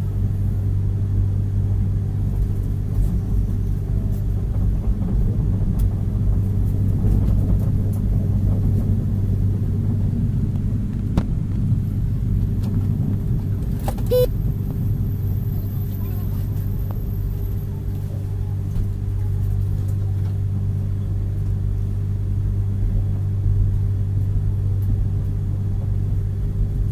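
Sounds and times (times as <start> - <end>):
train coach rumbling and humming: 0.0 - 26.9
short high-pitched tone: 14.1 - 14.3.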